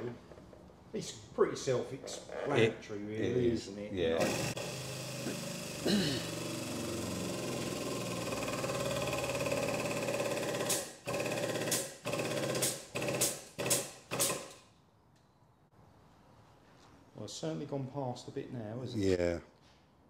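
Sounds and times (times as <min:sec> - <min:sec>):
hydraulic pump running: 0:04.2 - 0:14.5.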